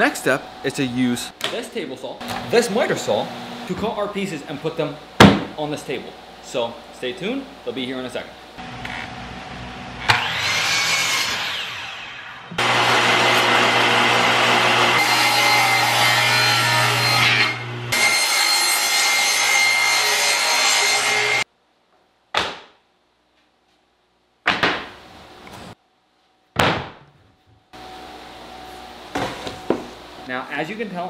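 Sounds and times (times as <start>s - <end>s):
table saw cutting plywood: 8.6s - 21.4s.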